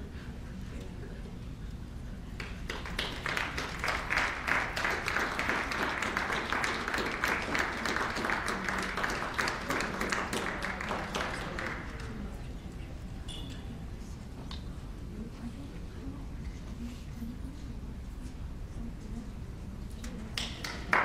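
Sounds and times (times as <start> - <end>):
audience clapping: 2.4 - 12.4, 20.3 - 21.0.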